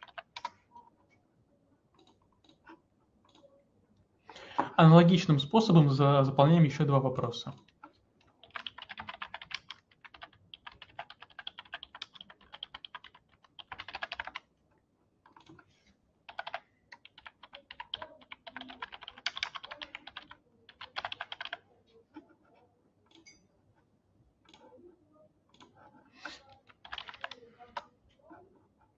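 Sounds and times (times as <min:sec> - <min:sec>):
typing on computer keyboard: 0:00.0 - 0:00.6, 0:07.5 - 0:14.5, 0:15.2 - 0:15.7, 0:16.3 - 0:21.6, 0:25.5 - 0:27.9.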